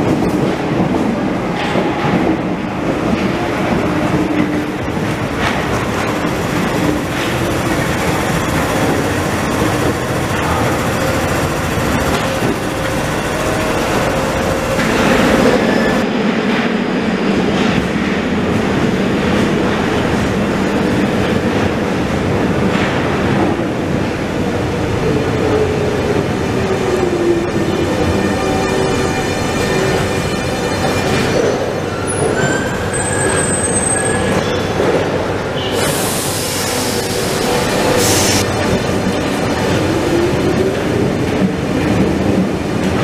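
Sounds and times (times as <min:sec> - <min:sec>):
train wheels rumbling on rails: 0:00.0 - 0:43.0
traction motor whine: 0:05.6 - 0:16.0.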